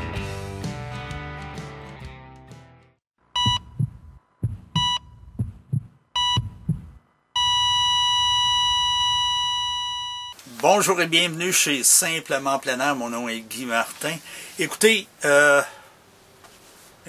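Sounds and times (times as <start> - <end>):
flatline tone: 3.4 - 5.5, 6.2 - 10.3
heartbeat thumps: 3.4 - 7.0
heart monitor beeps: 3.4 - 10.3.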